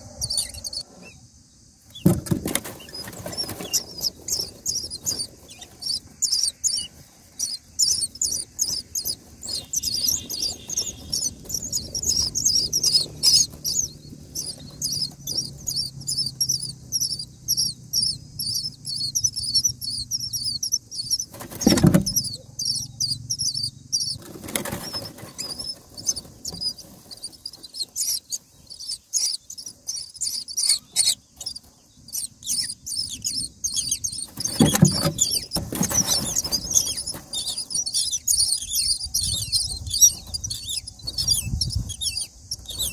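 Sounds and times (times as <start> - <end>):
nestlings cheeping: 0.0 - 42.9
dull thumps: 1.9 - 5.6, 21.3 - 22.4, 34.2 - 37.6.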